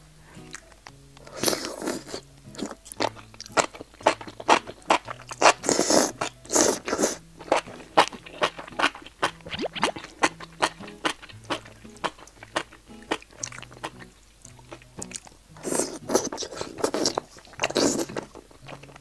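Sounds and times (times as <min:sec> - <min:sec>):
soft background music: 0:00.0 - 0:19.0
crunchy chewing: 0:00.4 - 0:19.0
wet slurping: 0:01.3 - 0:02.8, 0:04.4 - 0:12.7, 0:15.6 - 0:18.8.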